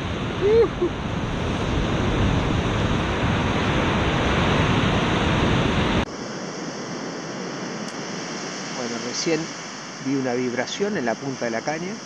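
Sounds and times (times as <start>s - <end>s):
wind buffeting microphone: 0.0s - 10.2s
ocean surf breaking: 0.0s - 12.0s
steady hiss: 7.9s - 12.0s.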